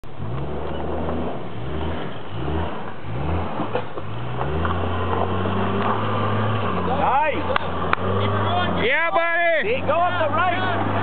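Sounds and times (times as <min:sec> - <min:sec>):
truck engine revving: 0:00.0 - 0:11.0.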